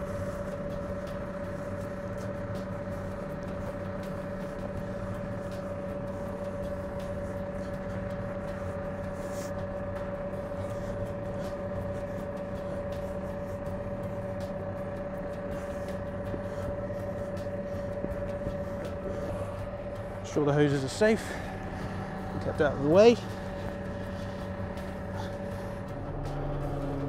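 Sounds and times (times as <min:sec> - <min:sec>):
diesel engine idling: 0:00.0 - 0:27.0.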